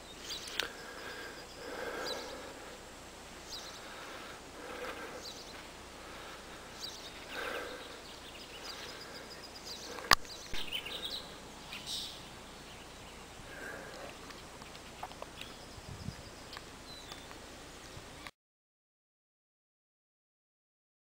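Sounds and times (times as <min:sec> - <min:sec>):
faint bird chirps: 0:00.0 - 0:02.5, 0:03.4 - 0:05.7, 0:06.7 - 0:18.3
outdoor ambience: 0:00.0 - 0:18.4.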